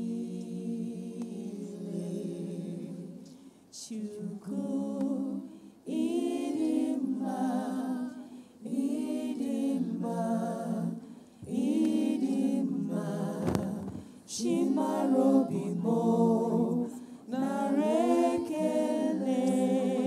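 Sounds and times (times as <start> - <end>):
women singing unaccompanied: 0.0 - 20.0
breaths between phrases: 16.9 - 17.3.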